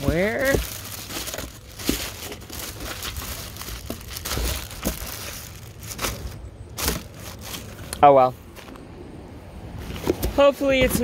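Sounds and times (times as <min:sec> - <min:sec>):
plastic toy bricks rustling: 0:00.0 - 0:07.8.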